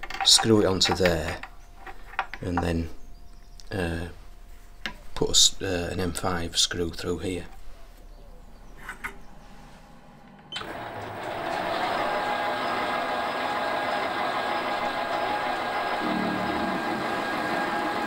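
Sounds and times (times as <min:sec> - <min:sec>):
machine tool motor whine: 0:10.0 - 0:18.0.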